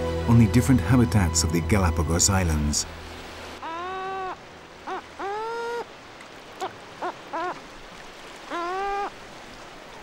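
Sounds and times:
faint steady noise wash: 0.0s - 10.0s
gulls calling: 3.5s - 10.0s.

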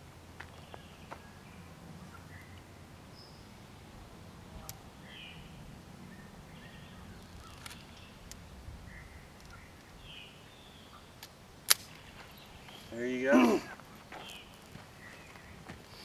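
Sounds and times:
faint outdoor ambience: 0.0s - 16.0s
sharp clicks: 7.2s - 8.4s, 11.2s - 12.0s.

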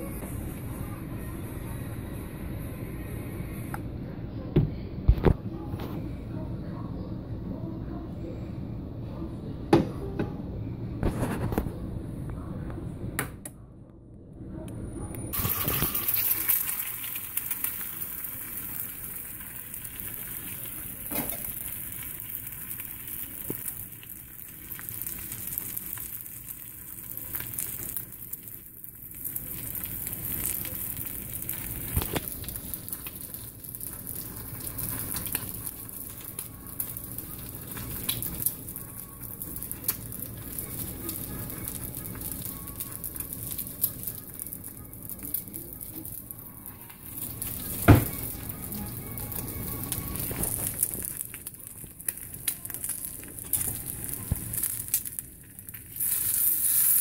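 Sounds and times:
egg sizzling in a skillet: 15.4s - 57.0s
small crackles: 15.4s - 57.0s.

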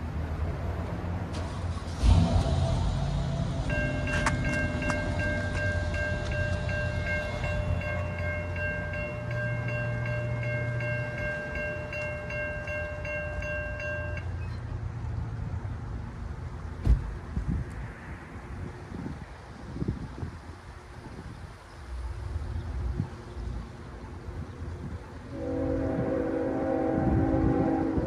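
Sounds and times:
crossing warning bell ringing: 2.0s - 14.7s
loud thump: 16.8s - 17.1s.

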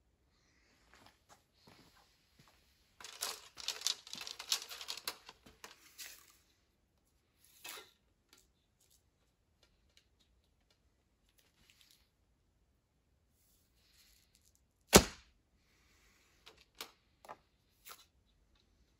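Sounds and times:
rustling and crinkling handling: 0.9s - 7.7s.

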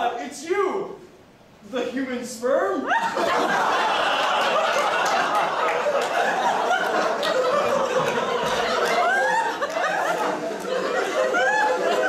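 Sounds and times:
audience laughing: 2.9s - 12.0s.

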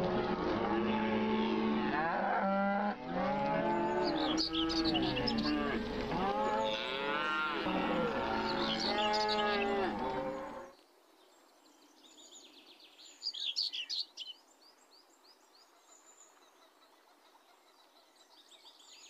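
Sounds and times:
cattle mooing: 0.0s - 10.7s.

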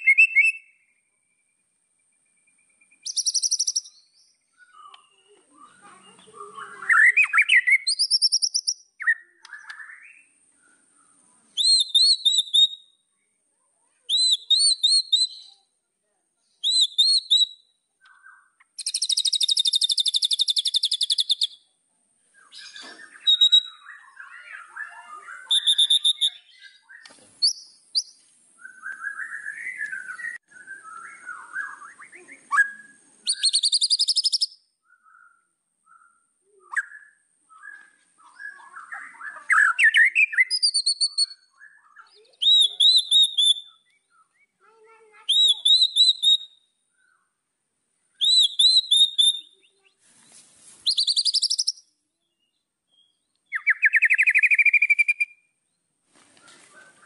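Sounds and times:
bird singing whistled notes: 0.0s - 13.1s, 14.1s - 15.7s, 16.4s - 21.7s, 22.3s - 44.6s, 45.2s - 47.4s, 48.1s - 57.0s
bird chattering: 18.0s - 21.6s, 38.5s - 46.4s.

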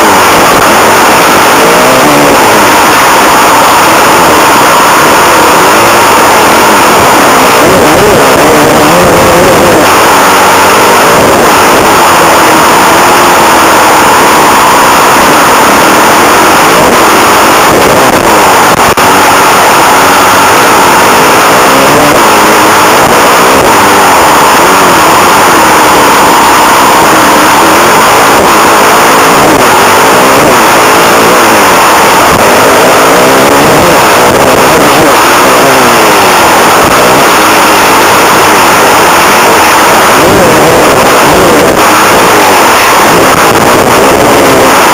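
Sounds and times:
motocross engine revving: 0.0s - 44.9s.

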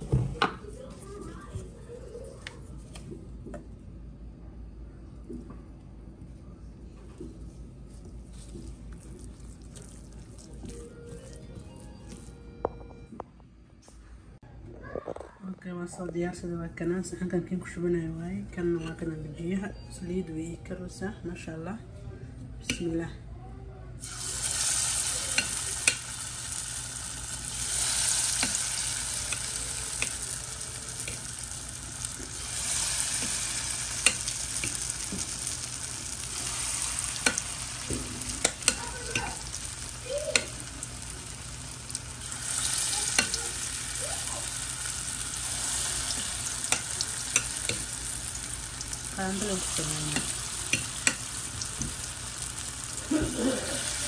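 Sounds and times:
fritters sizzling in hot oil: 24.0s - 54.0s.

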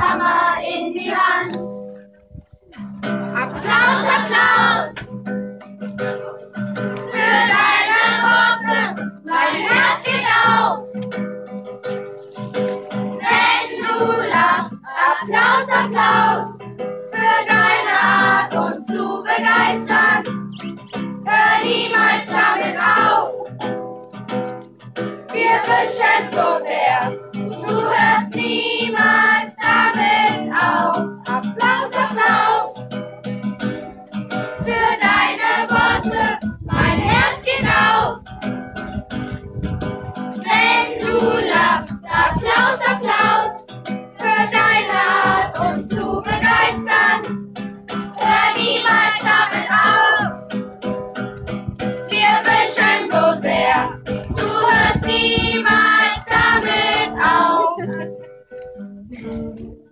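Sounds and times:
children singing: 0.0s - 1.8s, 3.3s - 5.3s, 6.0s - 10.8s, 13.1s - 23.5s, 25.3s - 32.9s, 34.6s - 38.2s, 40.4s - 47.3s, 48.1s - 50.4s, 52.1s - 57.9s
acoustic guitar: 0.0s - 59.9s.

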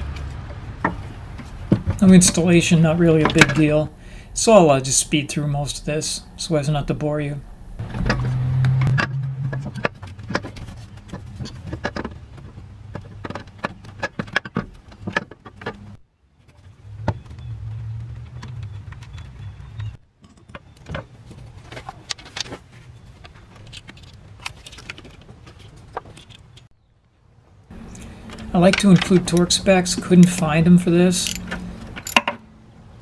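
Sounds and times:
low steady hum: 0.0s - 11.2s, 27.7s - 33.0s
metal parts and tools clinking: 27.7s - 32.4s.

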